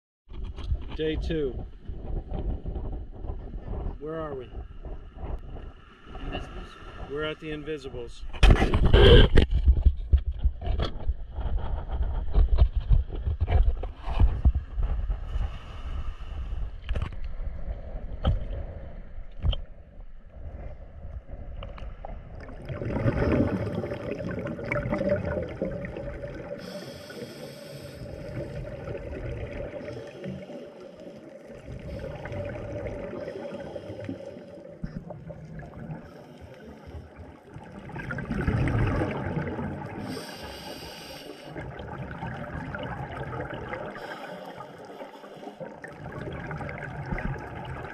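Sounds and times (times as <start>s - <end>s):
wind: 0.3s - 41.9s
scuba breathing underwater: 15.2s - 16.9s, 22.7s - 35.1s, 35.8s - 46.6s
exhaled bubbles: 21.4s - 47.9s.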